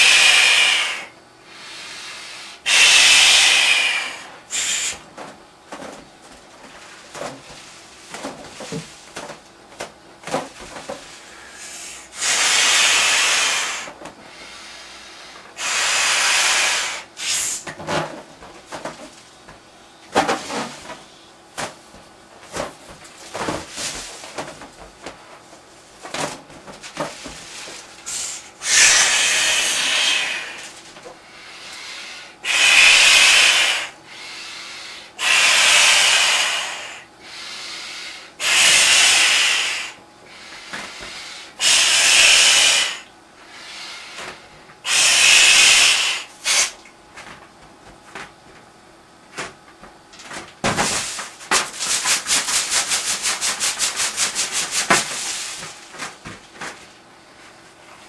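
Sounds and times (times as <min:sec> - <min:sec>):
breathy blows into balloon: 0:00.0 - 0:05.0, 0:11.2 - 0:17.6, 0:28.0 - 0:30.7, 0:31.3 - 0:44.2, 0:44.8 - 0:46.8.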